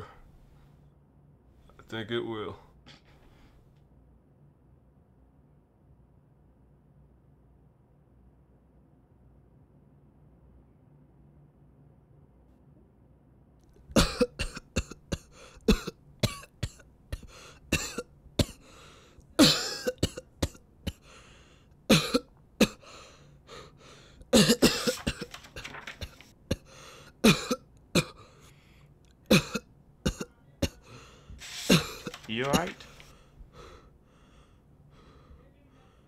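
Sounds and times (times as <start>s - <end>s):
man coughing hard: 13.9s - 18.8s, 19.4s - 21.2s, 21.9s - 22.9s, 24.2s - 28.4s, 29.3s - 33.1s.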